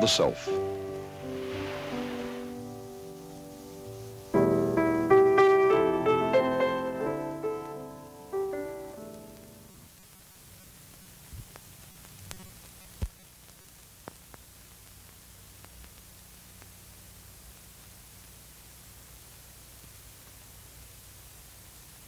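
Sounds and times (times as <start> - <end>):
piano music: 0.0 - 9.8
faint steady hiss: 0.0 - 22.0.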